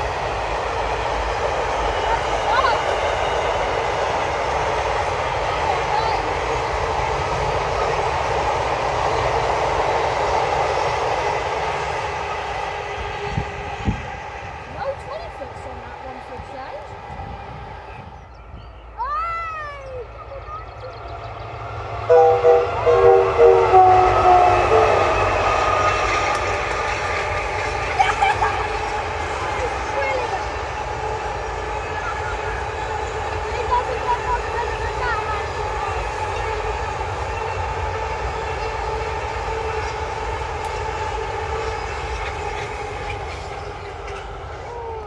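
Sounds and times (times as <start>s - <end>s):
train rumble and wheel noise: 0.0s - 45.0s
locomotive horn blasts: 22.1s - 26.1s.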